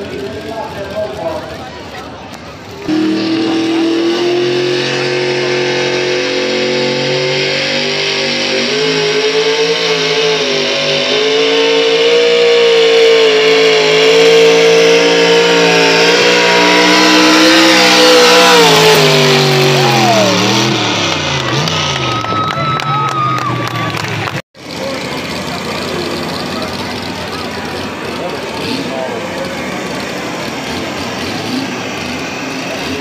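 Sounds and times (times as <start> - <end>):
truck engine at full throttle: 0.0 - 33.0.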